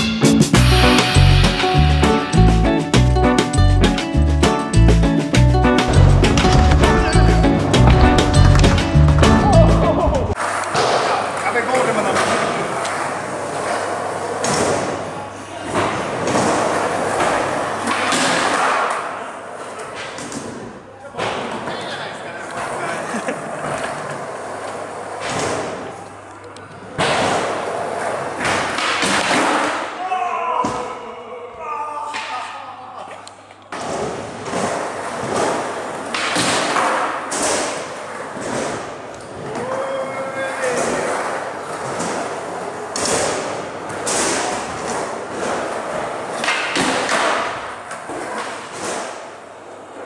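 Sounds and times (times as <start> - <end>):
skateboard hitting ramp: 5.8 - 11.4, 27.0 - 29.9, 33.8 - 39.6, 40.8 - 49.3
skateboard wheels rolling: 5.8 - 20.6, 21.5 - 26.2, 26.9 - 29.7, 33.7 - 50.0.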